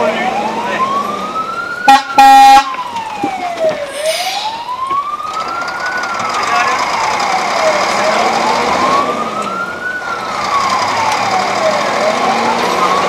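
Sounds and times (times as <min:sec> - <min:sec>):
fire engine siren wailing: 0:00.0 - 0:13.0
horn blasts: 0:01.9 - 0:02.7.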